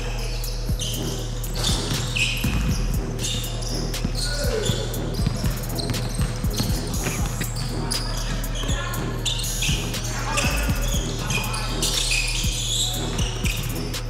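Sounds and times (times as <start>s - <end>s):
sneaker squeaks: 0.0s - 14.0s
basketball bouncing on wooden floor: 1.6s - 2.9s, 4.0s - 8.8s.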